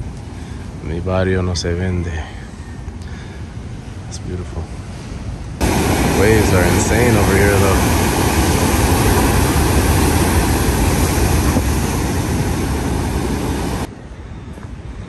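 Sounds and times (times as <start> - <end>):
surf breaking on rocks: 5.6 - 13.9.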